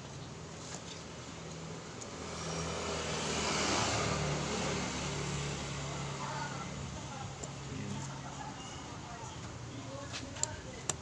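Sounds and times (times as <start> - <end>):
vehicle passing by: 2.2 - 6.9.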